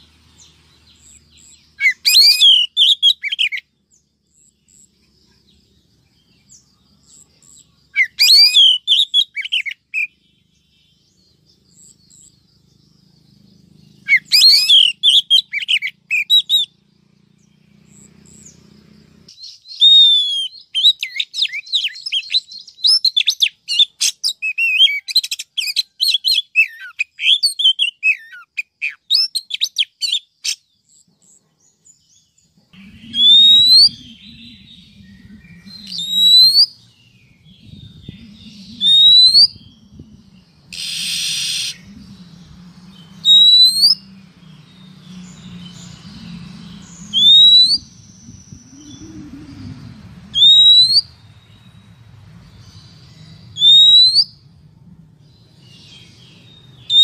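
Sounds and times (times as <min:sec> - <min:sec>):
bird chirping and whistling: 0:01.0 - 0:03.6, 0:07.5 - 0:10.2, 0:14.0 - 0:16.8, 0:19.3 - 0:30.6, 0:32.8 - 0:51.9, 0:52.5 - 0:54.5, 0:55.6 - 0:57.0
low hum: 0:32.7 - 0:56.9.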